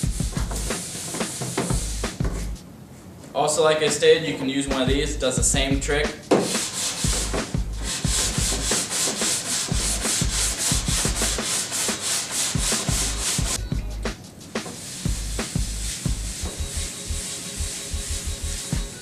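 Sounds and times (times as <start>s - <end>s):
brush scrubbing snowboard base: 0.0s - 2.2s, 6.4s - 13.6s, 14.6s - 19.0s.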